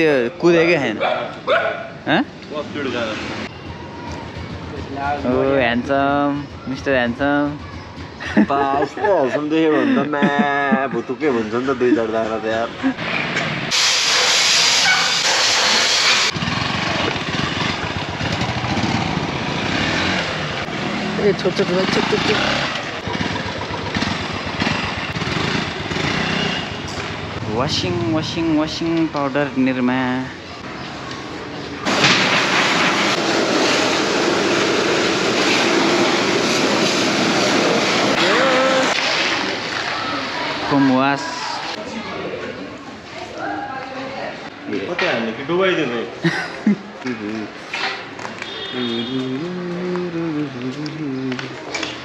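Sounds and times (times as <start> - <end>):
motorcycle engine running: 3.5 - 8.2, 16.3 - 28.3
pressure washer jet hissing: 13.7 - 16.4
pressure washer spraying water: 13.7 - 16.4, 31.9 - 39.4.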